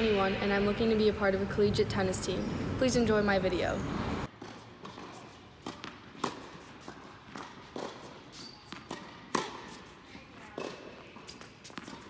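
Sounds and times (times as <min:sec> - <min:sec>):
tennis ball strikes: 0:04.4 - 0:09.8.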